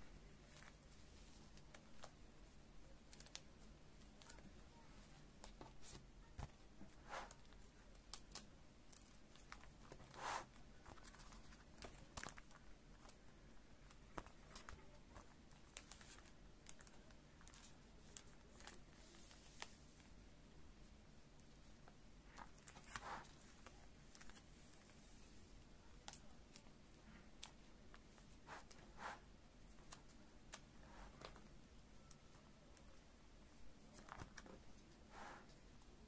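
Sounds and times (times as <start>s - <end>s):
plastic sleeves crinkling: 7.2s - 20.1s, 21.8s - 25.3s.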